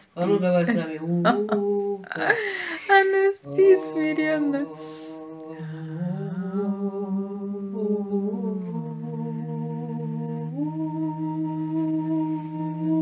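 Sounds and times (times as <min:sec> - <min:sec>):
people humming a chant: 0:01.0 - 0:13.0.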